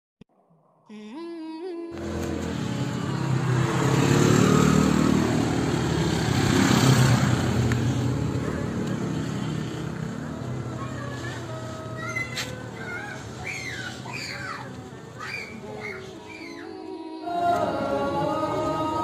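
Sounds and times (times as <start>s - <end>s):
motorcycle riding past: 2.0s - 12.9s.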